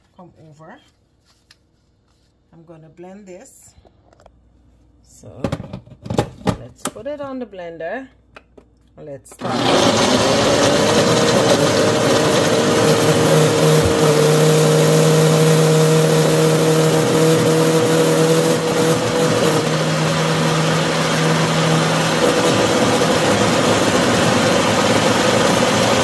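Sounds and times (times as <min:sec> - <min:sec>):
blender motor whine: 0:09.4 - 0:26.0.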